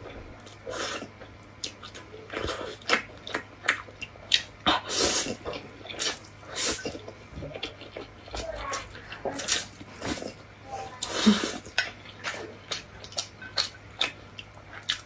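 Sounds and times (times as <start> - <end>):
person slurping noodles: 4.7 - 5.4.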